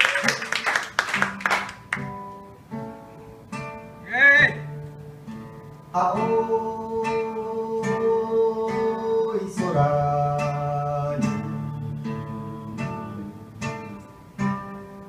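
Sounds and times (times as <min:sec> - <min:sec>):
applause: 0:00.0 - 0:02.1
acoustic guitar plucking and strumming: 0:00.2 - 0:15.0.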